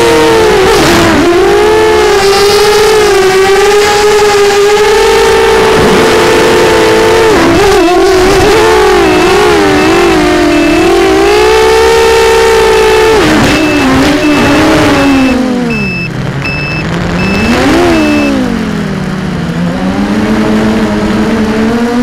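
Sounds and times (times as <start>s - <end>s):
faint short beep: 8.9s - 11.0s, 12.9s - 18.4s.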